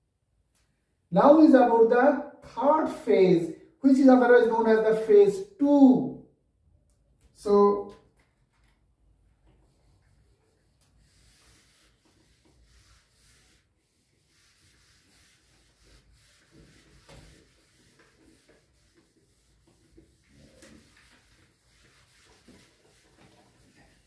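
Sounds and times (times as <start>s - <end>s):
eraser rubbing on whiteboard: 9.5s - 24.0s.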